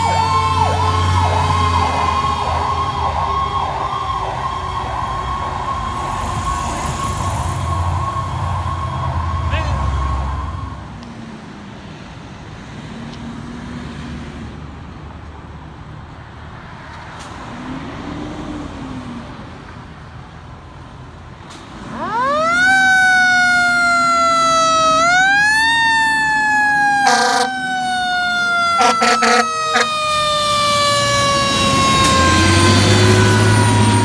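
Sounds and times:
fire truck siren wailing: 0.0 - 11.2, 21.7 - 34.0.

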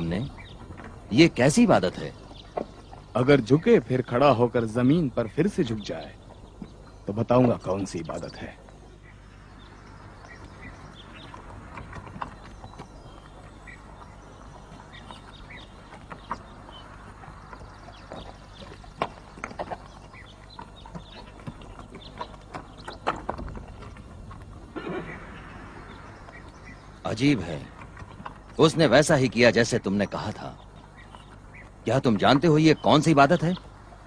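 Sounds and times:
hoof clops and knocks: 0.0 - 3.5, 6.2 - 8.8, 10.3 - 24.9, 25.9 - 29.6
low hum: 0.0 - 32.0.

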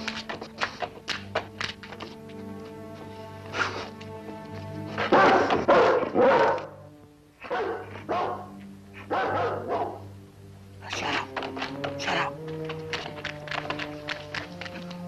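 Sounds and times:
background music with held notes: 0.0 - 15.0
dog barking: 5.0 - 6.8, 7.4 - 10.1.

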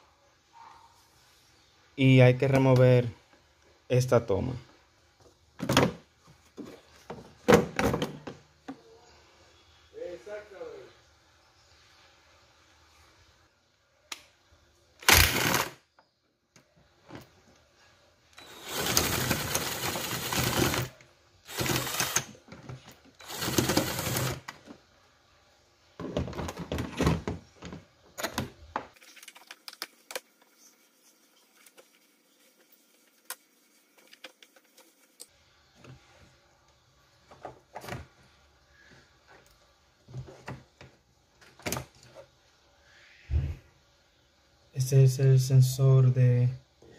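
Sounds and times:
plastic rattling and scraping: 21.6 - 24.8, 26.0 - 30.6.

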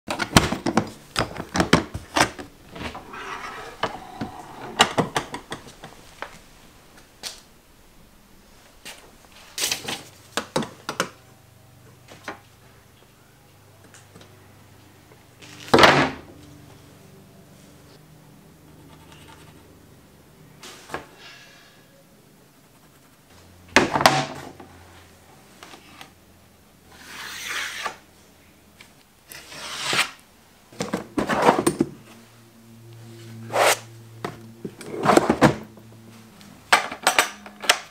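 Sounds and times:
plastic sliding scrapes: 2.7 - 5.2.

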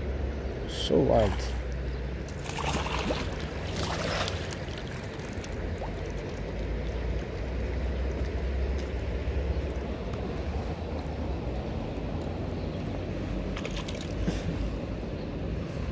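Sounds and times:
fish splashing: 1.2 - 10.0, 13.4 - 14.5.

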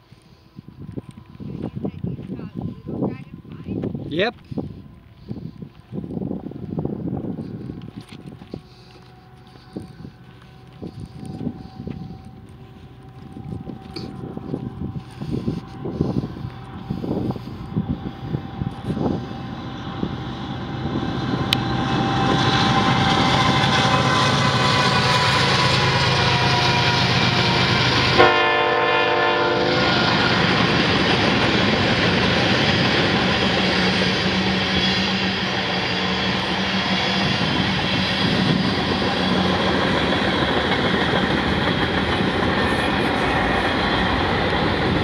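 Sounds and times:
freight train rumbling and clattering: 0.7 - 45.0
train horn blast: 21.4 - 30.6.

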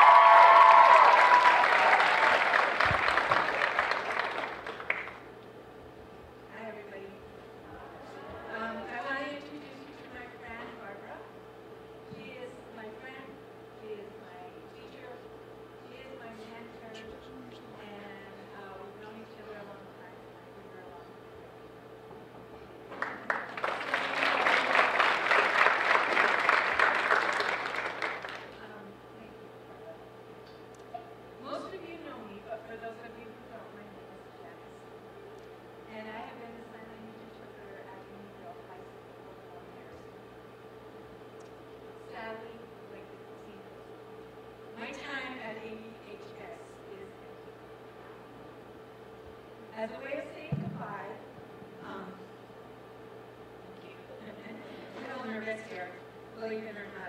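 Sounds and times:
high whoops: 0.0 - 3.0
audience applauding and cheering: 0.0 - 5.2, 22.9 - 28.6.

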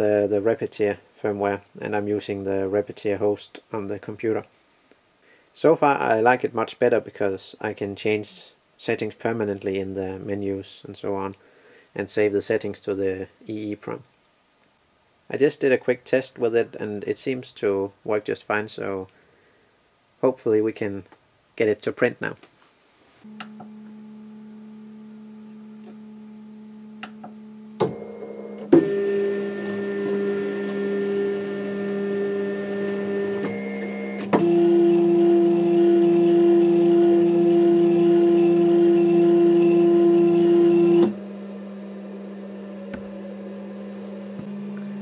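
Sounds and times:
steady low hum: 23.3 - 45.0
stepper motor whine: 23.3 - 45.0.

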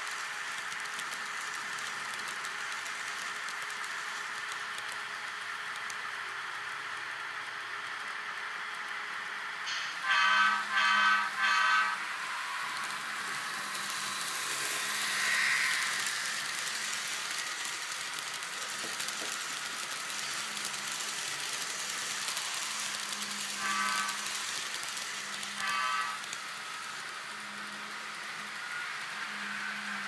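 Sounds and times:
model train hissing on track: 0.0 - 30.0
model train horn blasts: 10.0 - 12.1, 25.6 - 26.2.

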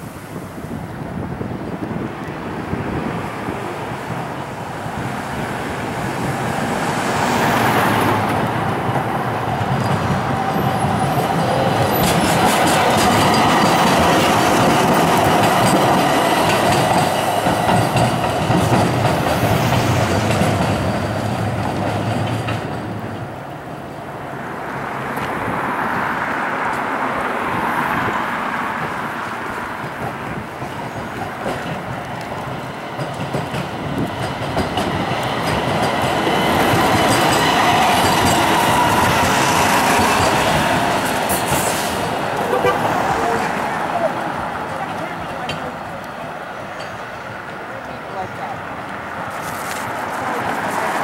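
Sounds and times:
light rail cars passing: 0.0 - 51.0
wheels clicking over rail joints: 8.2 - 23.6, 28.6 - 51.0.

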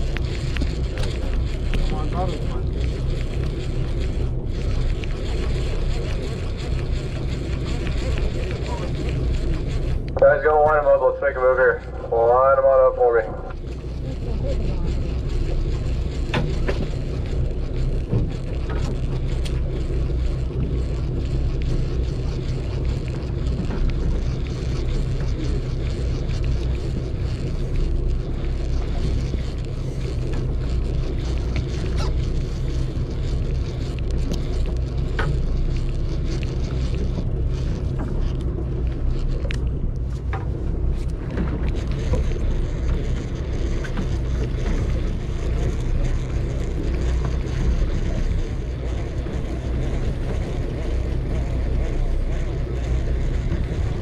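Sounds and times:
boat engine humming: 0.0 - 54.0
faint clicks: 22.4 - 51.4.

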